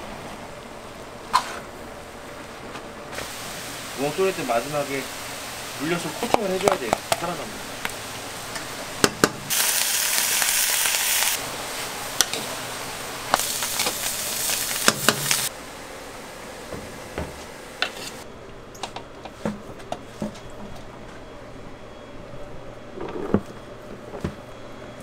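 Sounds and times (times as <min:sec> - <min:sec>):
food sizzling in a pan: 0:03.1 - 0:15.6
metal spatula scraping a pan: 0:17.8 - 0:18.2.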